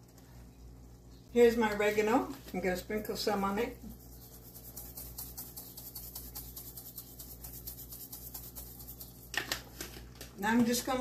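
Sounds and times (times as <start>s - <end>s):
spice jar shaking: 3.9s - 9.8s.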